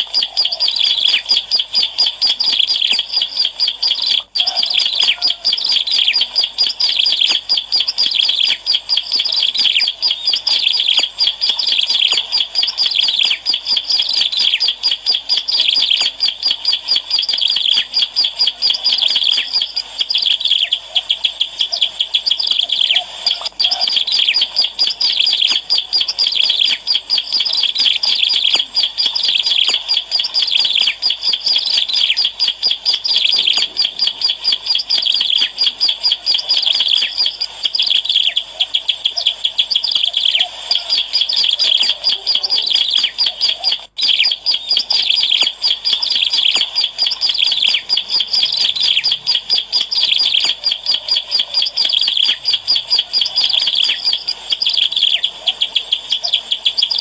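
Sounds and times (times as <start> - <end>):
bird rapid high chirps: 0.0 - 57.0.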